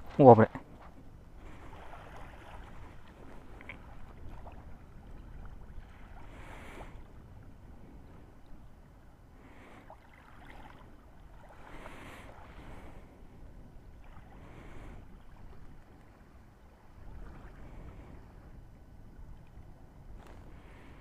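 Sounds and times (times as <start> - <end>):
wind rumble on microphone: 0.0 - 21.0
sea waves washing ashore: 1.4 - 8.3.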